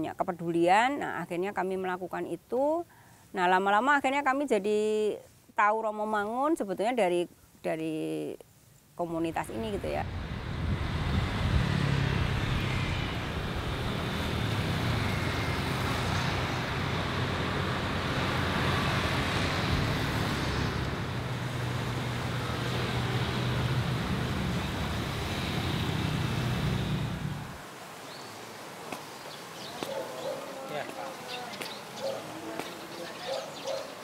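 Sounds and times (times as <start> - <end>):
motorcycles and cars passing: 9.4 - 27.8, 29.4 - 34.0.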